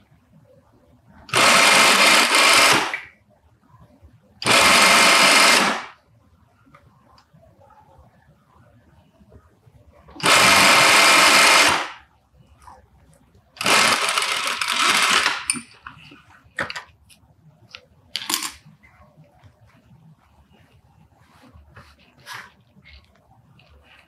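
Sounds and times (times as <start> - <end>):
industrial sewing machine running: 1.3 - 2.9, 4.4 - 5.9, 10.2 - 11.8, 13.6 - 15.4.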